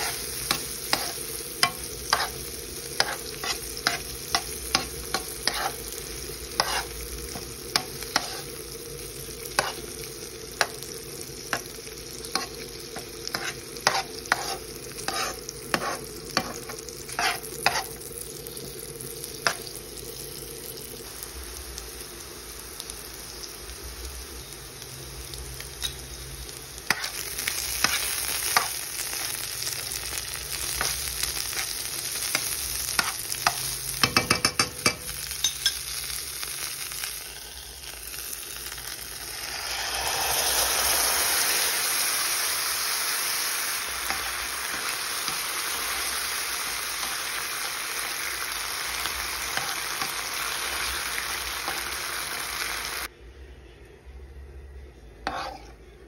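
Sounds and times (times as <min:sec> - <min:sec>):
metal spoon scraping a pan: 0:00.0 - 0:08.6, 0:09.5 - 0:09.9, 0:12.3 - 0:18.0, 0:26.9 - 0:29.4, 0:30.6 - 0:35.9, 0:55.2 - 0:55.8
food sizzling in oil: 0:00.0 - 0:53.1, 0:55.2 - 0:55.7.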